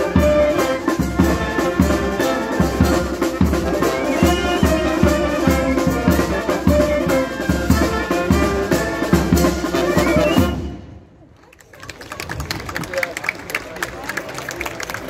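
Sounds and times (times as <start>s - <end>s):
brass band playing: 0.0s - 11.0s.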